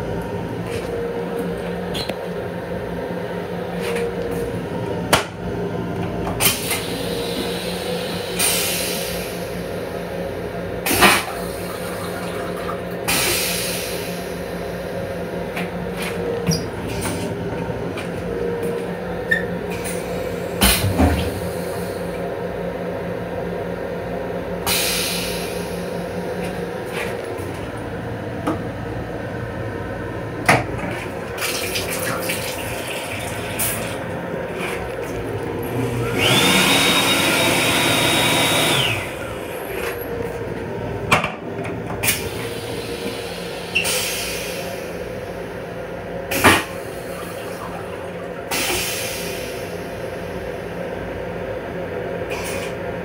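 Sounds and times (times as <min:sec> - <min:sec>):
train running hum: 0:00.0 - 0:53.0
toilet flushing: 0:05.3 - 0:15.2, 0:19.3 - 0:22.2, 0:30.4 - 0:40.5, 0:41.3 - 0:50.9.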